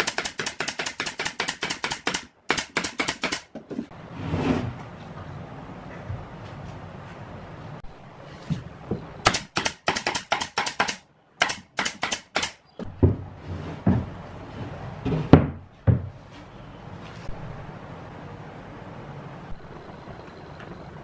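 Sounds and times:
nail gun firing: 0.0 - 3.5, 9.3 - 12.6
wooden panels knocking: 12.8 - 14.2, 15.0 - 16.2.

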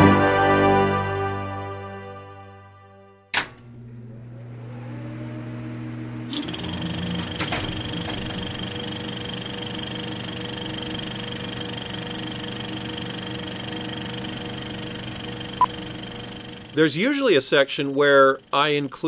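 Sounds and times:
clicks: 3.4 - 3.7
projector mechanical clatter: 3.4 - 19.0.

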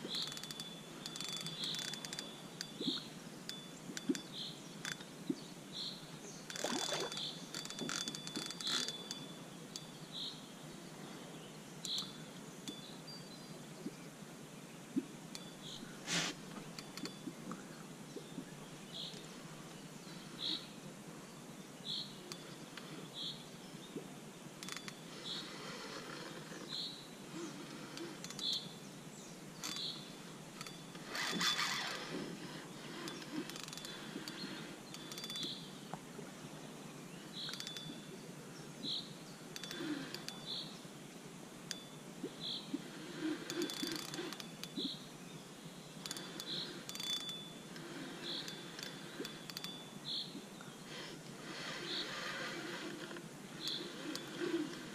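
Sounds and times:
reel gear rasping while winding: 0.1 - 2.8, 30.6 - 35.6, 43.0 - 44.6, 46.0 - 49.8, 50.9 - 54.9
fishing reel line buzzing out: 0.1 - 2.9, 6.5 - 9.4, 30.6 - 35.6, 42.9 - 44.6, 46.0 - 50.0, 50.9 - 54.9.

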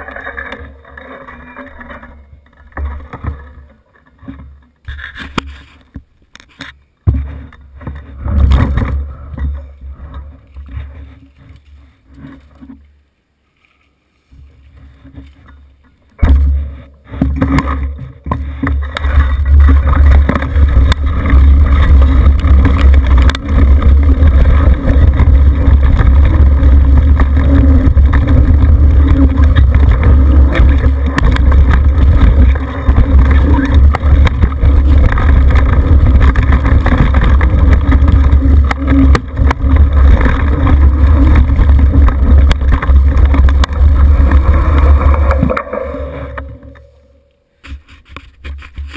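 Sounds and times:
bike knocks and rattles: 0.0 - 12.8, 14.4 - 48.9
bike tyres on dirt trail: 0.0 - 48.9
wind buffeting microphone: 18.7 - 46.8.

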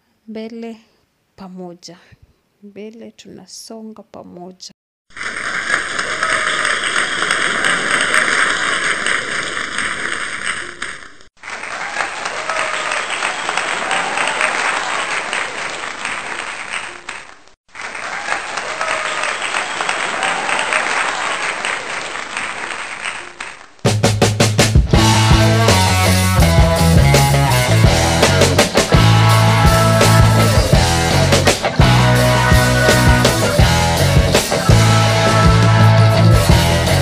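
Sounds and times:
crowd applause: 5.4 - 9.6, 11.4 - 23.8, 25.0 - 37.0.

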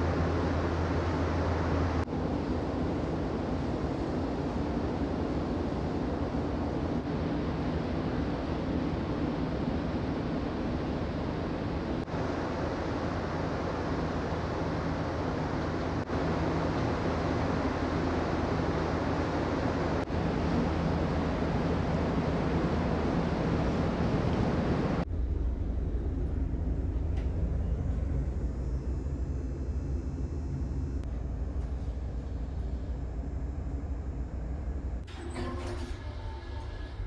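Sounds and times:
rushing wind and water: 0.0 - 28.3
ferry engine drone: 0.0 - 37.0.

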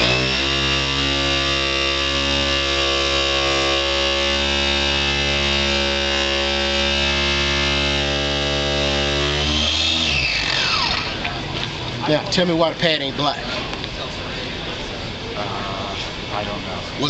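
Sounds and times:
orbital polisher motor hum: 0.0 - 11.5.

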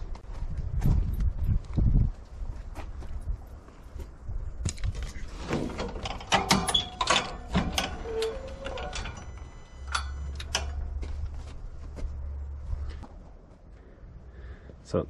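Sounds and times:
metal latch clicks and clunks: 4.7 - 10.9
door hinge squeak: 6.2 - 10.8.

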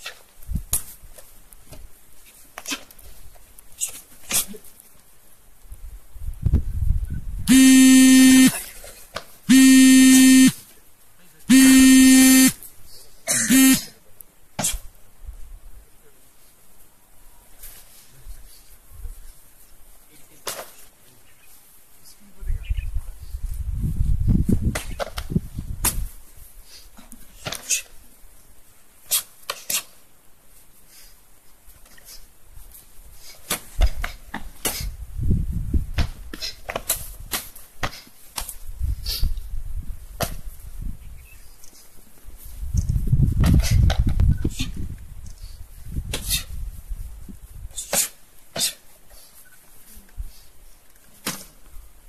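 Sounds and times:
sharp slaps and snaps of strikes: 0.0 - 1.0, 14.6 - 14.9, 24.7 - 26.1, 29.1 - 30.0, 33.4 - 34.9, 35.9 - 38.6, 40.2 - 40.4, 47.8 - 48.8, 51.2 - 51.5
loud horn-like buzz: 7.5 - 8.6, 9.5 - 10.6, 11.5 - 12.6, 13.3 - 13.9.

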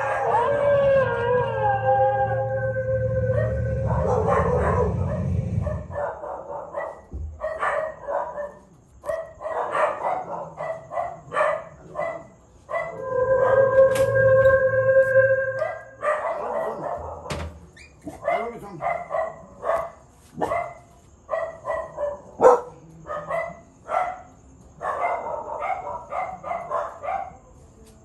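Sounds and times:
howls through loudspeaker: 0.0 - 6.6, 11.3 - 17.3
dog barking: 3.2 - 13.6, 15.6 - 17.4, 18.0 - 27.6.

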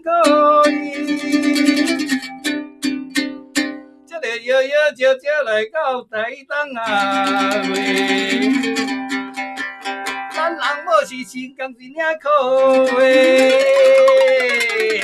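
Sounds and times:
man singing: 0.0 - 2.1, 4.1 - 9.1, 10.1 - 15.0
plucked lute: 0.0 - 4.2, 6.8 - 11.6, 12.4 - 15.0.

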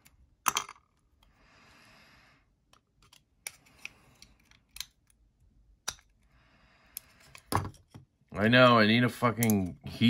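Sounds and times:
metal tools clicking: 9.3 - 9.7.

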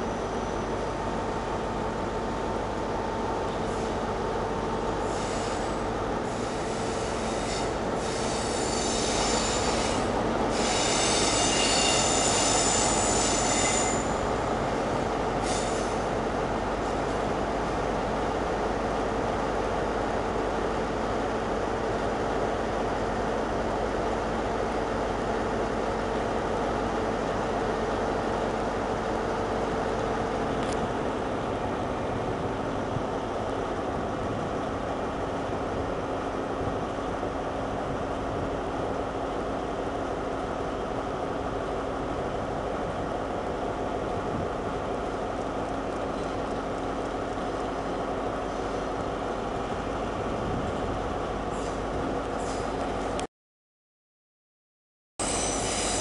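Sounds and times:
train wheels squealing: 0.0 - 0.9, 5.0 - 14.4, 15.4 - 16.2, 55.2 - 56.0
train rolling rumble: 0.0 - 53.3.

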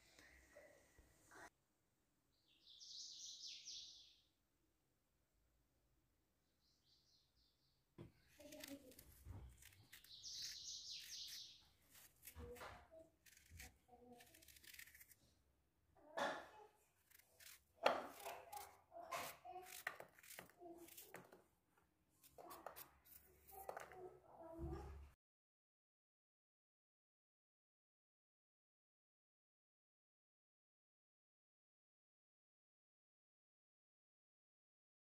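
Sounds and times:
knife slicing apple: 8.3 - 15.3, 17.0 - 21.4, 22.2 - 24.1.

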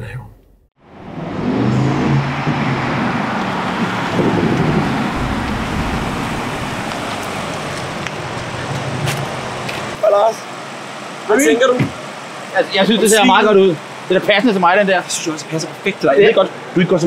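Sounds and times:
car engine driving and slowing: 0.4 - 10.0.

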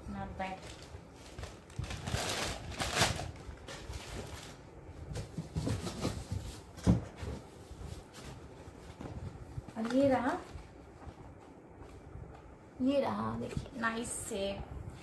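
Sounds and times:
packaging rustling: 0.4 - 6.7.

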